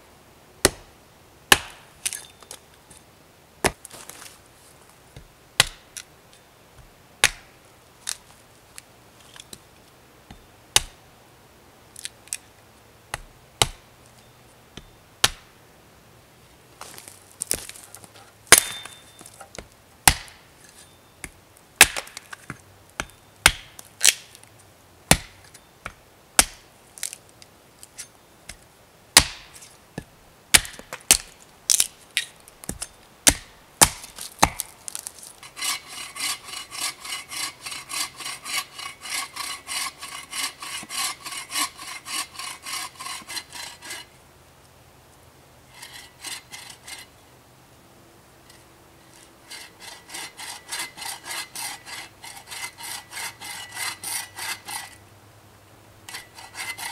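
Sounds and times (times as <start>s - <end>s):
axe chopping wood: 0.6s - 0.9s, 1.5s - 1.9s, 5.6s - 5.9s, 7.2s - 7.5s, 10.8s - 11.0s, 13.1s - 13.8s, 14.8s - 15.5s, 18.5s - 19.0s, 19.6s - 20.4s, 21.8s - 24.3s, 25.1s - 26.6s, 29.2s - 31.9s, 32.6s - 35.0s
bow saw cutting log: 35.4s - 44.1s, 49.5s - 55.0s, 56.1s - 56.9s.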